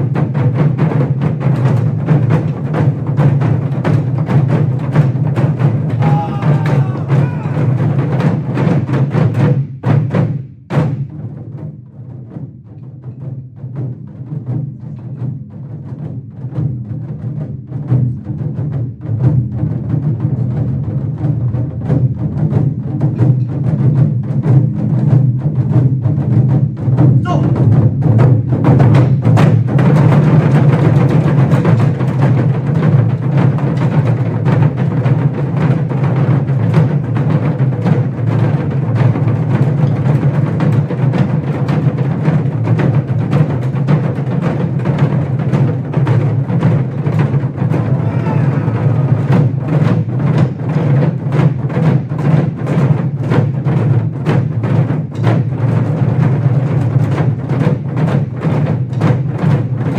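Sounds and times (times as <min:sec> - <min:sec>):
group of barrel drums beating: 0:00.0 - 0:59.9.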